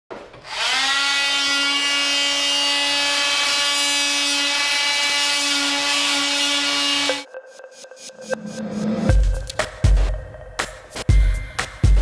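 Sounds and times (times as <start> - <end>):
oscillating multi-tool whining: 0.4 - 7.2.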